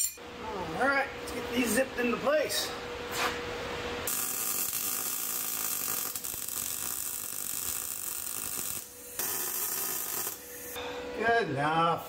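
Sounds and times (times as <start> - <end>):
welding arc crackling: 4.1 - 10.8.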